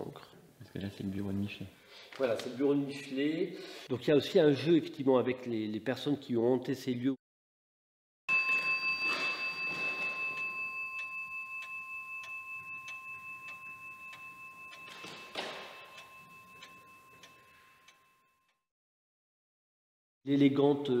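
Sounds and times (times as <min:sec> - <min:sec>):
clock bell striking: 0:08.3 - 0:18.4
clock ticking: 0:08.4 - 0:18.1.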